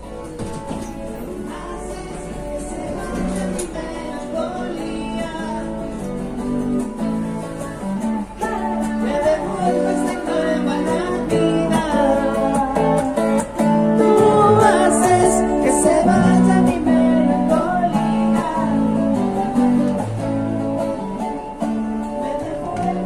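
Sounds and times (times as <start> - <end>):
guitar strumming: 0.0 - 23.0
man singing: 0.2 - 6.2, 8.4 - 19.7, 22.2 - 23.0.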